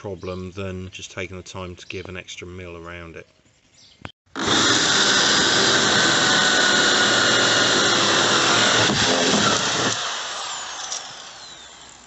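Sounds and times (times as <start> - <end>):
cordless drill grinding plastic: 4.3 - 12.0.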